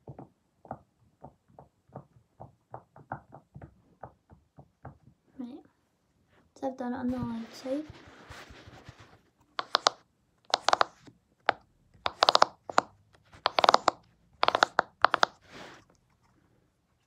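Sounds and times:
silicone fidget toy popping: 9.6 - 15.4.

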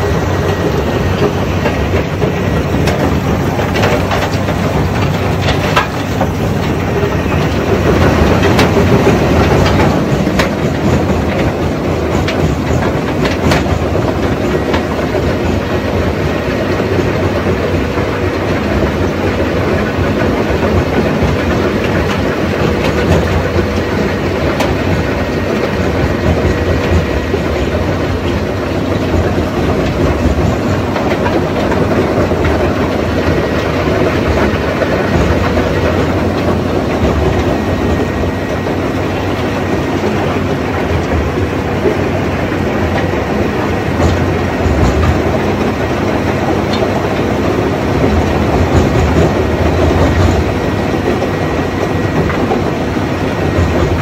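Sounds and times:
rock crusher rattling: 0.0 - 54.0.

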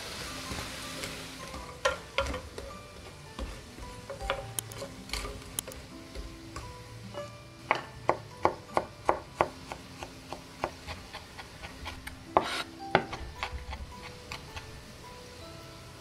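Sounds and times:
faint background music: 0.0 - 16.0
knife scraping board: 10.6 - 14.7.

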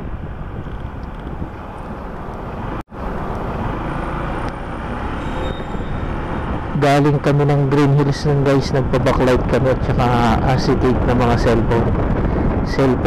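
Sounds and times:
scooter engine droning: 0.0 - 12.6
tyres on road: 0.0 - 13.0
wind noise on microphone: 0.0 - 13.0.

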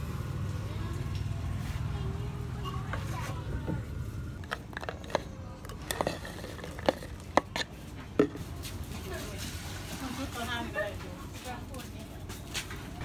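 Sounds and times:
utensils knocking a clay mortar: 4.4 - 8.4.

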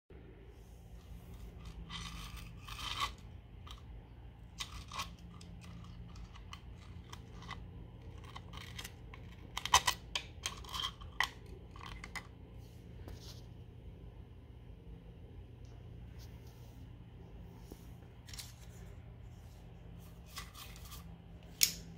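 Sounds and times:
faint steady hum: 0.1 - 21.9
file scraping tile grout: 1.0 - 3.8.

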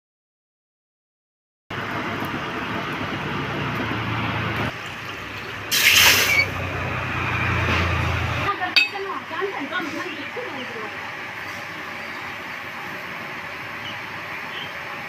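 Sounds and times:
loud hiss: 5.7 - 6.5.

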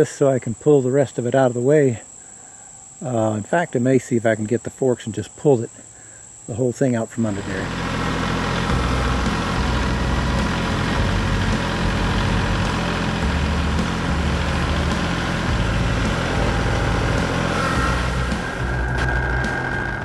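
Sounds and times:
tractor diesel engine running: 7.2 - 20.0.

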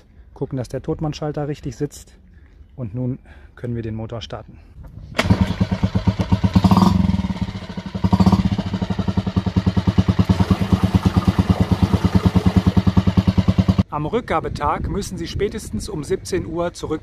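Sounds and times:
outboard motor running: 5.2 - 13.8.

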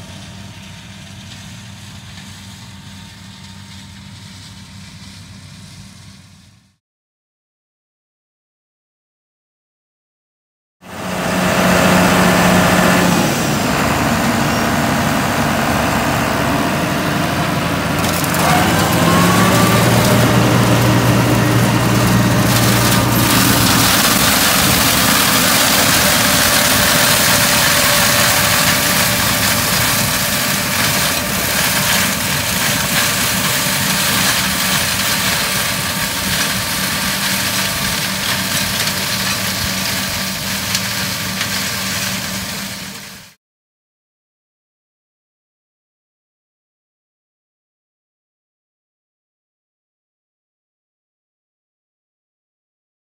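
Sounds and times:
tractor engine drone: 0.0 - 6.7, 10.8 - 43.4
mulcher rushing shredding noise: 10.9 - 43.3.

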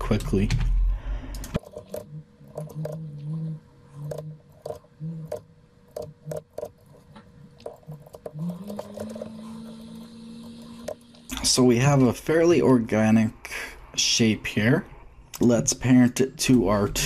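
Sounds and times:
computer mouse clicks: 1.3 - 11.4.

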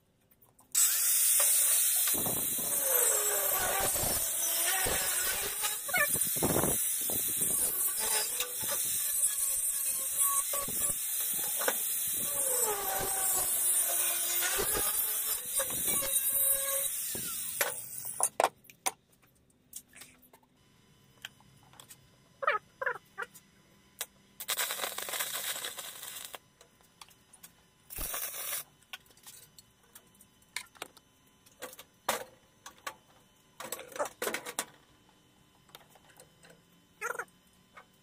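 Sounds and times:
cutting disc grinding steel: 0.8 - 18.2.

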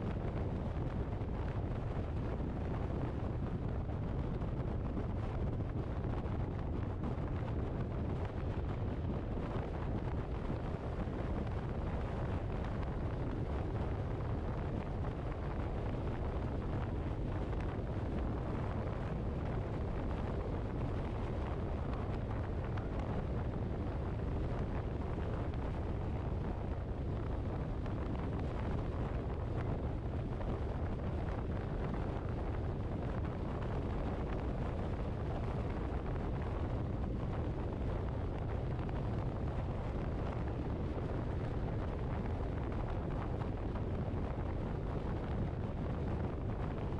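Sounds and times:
wind rumbling on microphone: 0.0 - 46.9.

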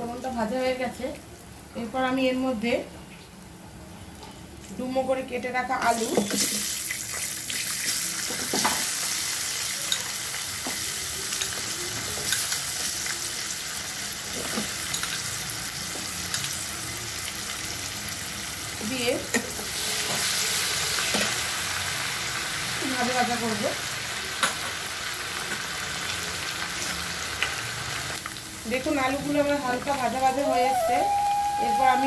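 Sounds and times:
potatoes sizzling in oil: 4.6 - 32.0.

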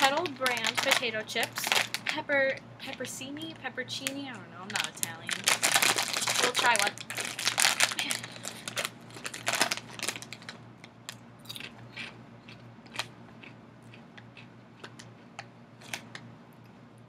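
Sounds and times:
chip bag rustling: 0.0 - 2.2, 4.6 - 10.6
chip crunching: 0.0 - 2.2, 4.0 - 16.6.

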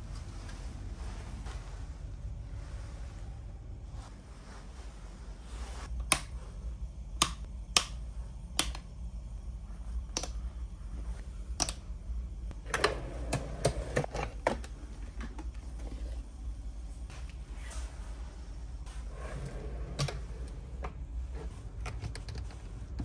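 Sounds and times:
switch clicks: 7.2 - 8.9.

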